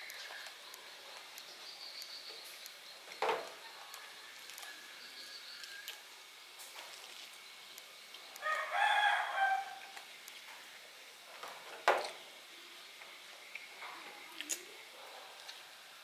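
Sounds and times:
rooster crowing: 8.4 - 10.0.

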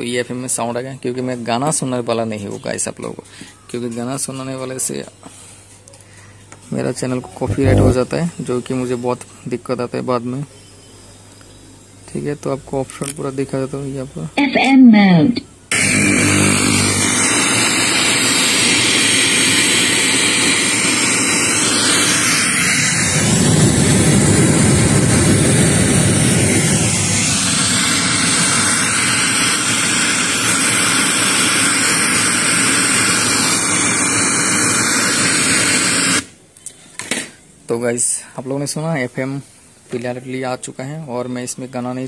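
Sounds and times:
radio static hiss: 7.0 - 8.5, 14.3 - 36.3.

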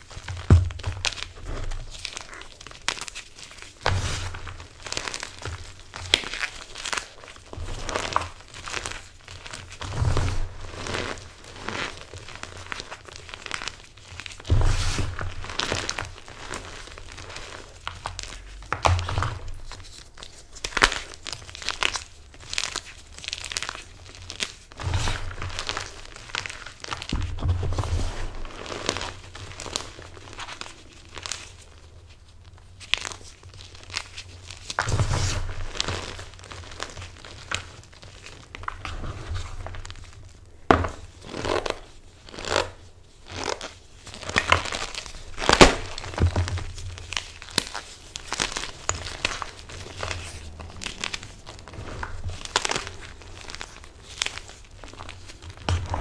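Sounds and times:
chalk blocks crunching: 32.9 - 56.0.

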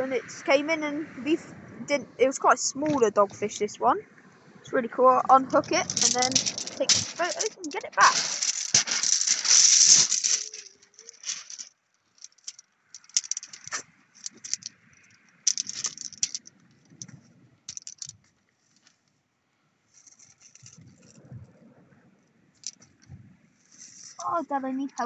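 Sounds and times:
pebbles clattering and crunching: 5.5 - 17.1, 17.7 - 18.2, 22.6 - 22.9.

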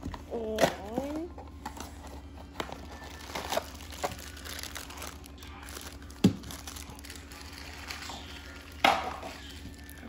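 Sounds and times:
foil bag crinkling: 2.5 - 10.0.

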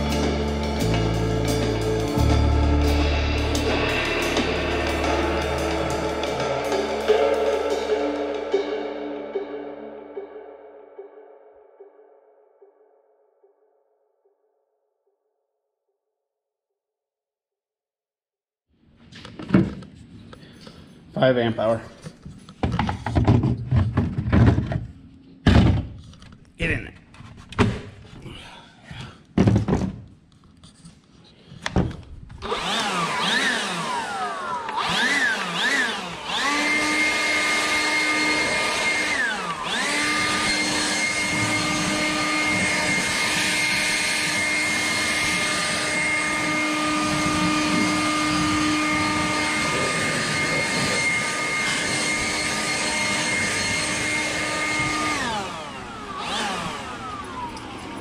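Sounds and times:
leaf blower motor whining: 0.0 - 8.9, 32.3 - 58.0.

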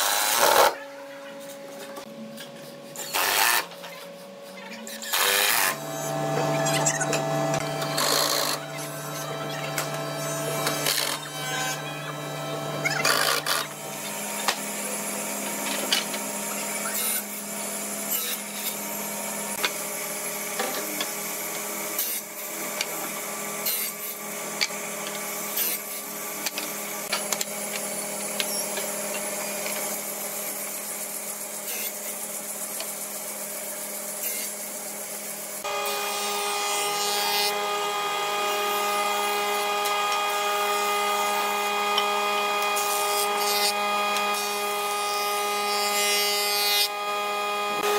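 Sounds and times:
table saw motor hum: 4.8 - 47.9
jointer-planer running: 5.1 - 30.6, 35.6 - 47.9.

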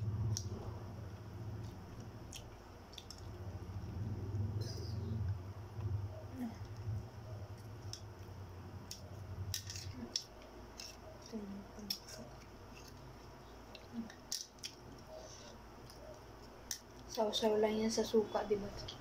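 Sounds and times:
low hum: 0.0 - 17.0
eggshell cracking and peeling: 2.0 - 3.4, 7.7 - 15.1.

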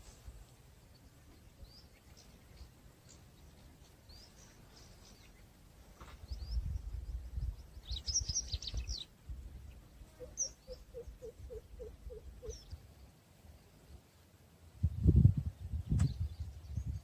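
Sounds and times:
small birds chirping: 0.0 - 17.0
low rumble on microphone: 6.1 - 10.0, 14.7 - 17.0.

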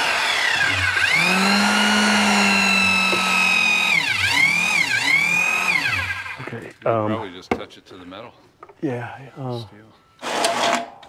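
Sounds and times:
concrete mixer motor whining: 0.0 - 6.7.

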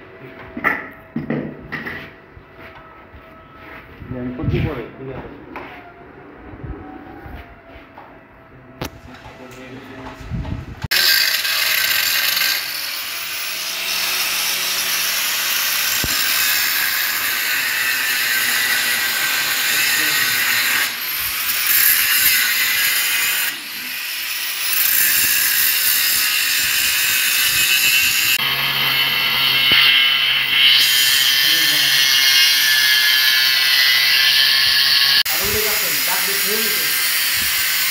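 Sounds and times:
angle grinder grinding: 10.9 - 37.9.

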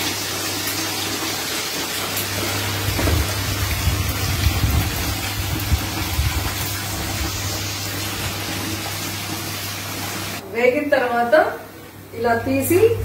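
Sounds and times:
chicken deep-frying in oil: 0.0 - 10.4.

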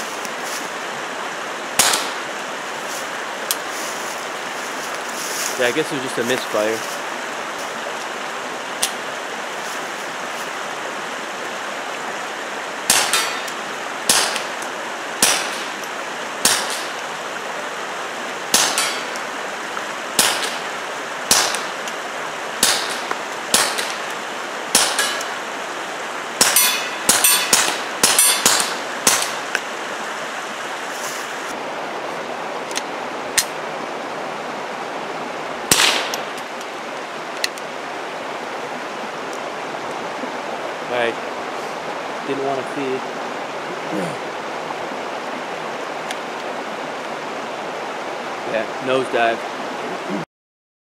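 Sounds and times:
suppressed pistol shots: 1.8 - 2.2, 20.2 - 20.6, 21.3 - 21.7, 22.6 - 24.1, 35.7 - 36.3.

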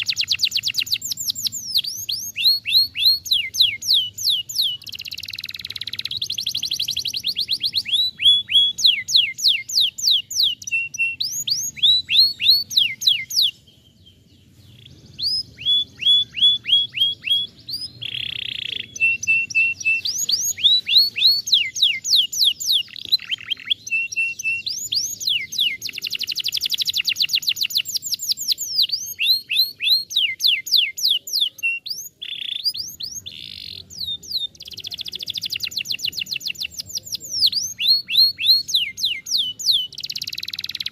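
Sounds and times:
canary singing trills: 0.0 - 40.9.

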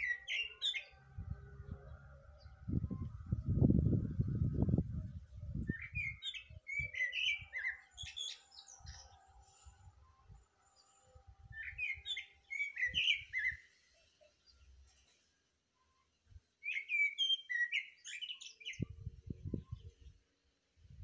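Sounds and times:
low rumbling on microphone: 1.0 - 6.0.

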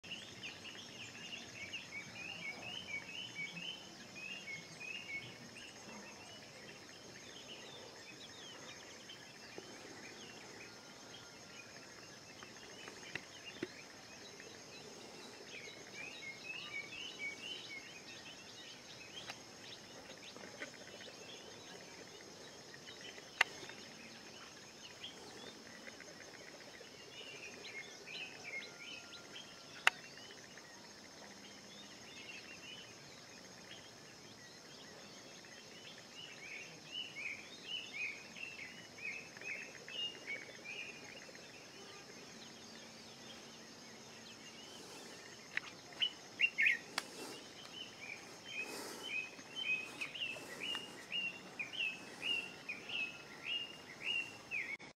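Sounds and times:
birds chirping rapidly: 42.4 - 54.9
sharp clicks: 46.9 - 47.8.

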